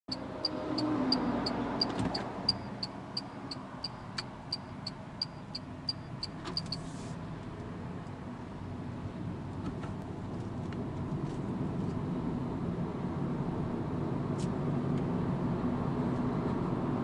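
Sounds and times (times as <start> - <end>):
turn signal ticking: 0.1 - 6.8
tyre and road noise: 0.1 - 17.0.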